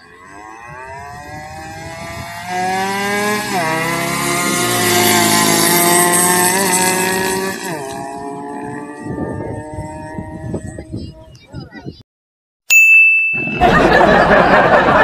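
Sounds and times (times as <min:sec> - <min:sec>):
racing motorcycles passing by: 0:00.0 - 0:11.5.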